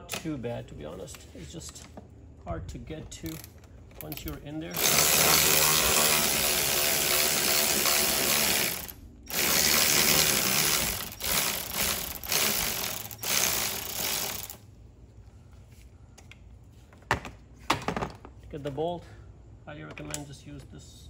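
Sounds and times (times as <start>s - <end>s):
cordless electric ratchet spinning: 4.7s - 14.7s.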